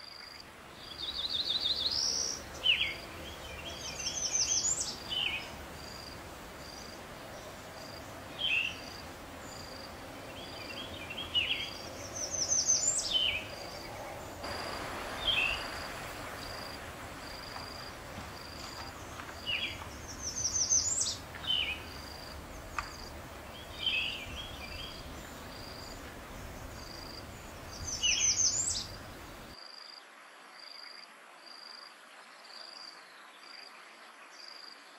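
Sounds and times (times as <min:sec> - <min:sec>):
low background noise: 0:00.0 - 0:34.9
insect chirping in even pulse: 0:11.5 - 0:30.0.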